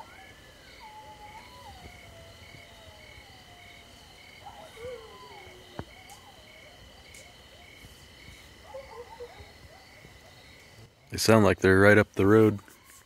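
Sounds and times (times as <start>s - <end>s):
coyotes howling: 0.0s - 11.3s
chorus of night trills: 0.0s - 13.0s.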